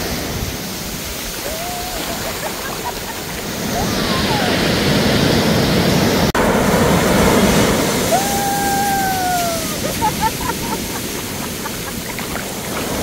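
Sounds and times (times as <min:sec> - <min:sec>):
surf breaking on beach: 0:00.0 - 0:13.0
woman crying out: 0:01.4 - 0:02.6, 0:03.7 - 0:04.7, 0:08.1 - 0:11.2
woman laughing: 0:01.4 - 0:04.8, 0:08.1 - 0:12.6.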